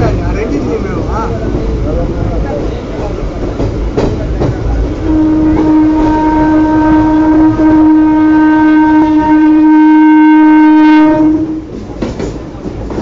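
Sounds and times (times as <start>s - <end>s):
train coaches rumbling past: 0.0s - 13.0s
train horn blast: 5.0s - 11.8s.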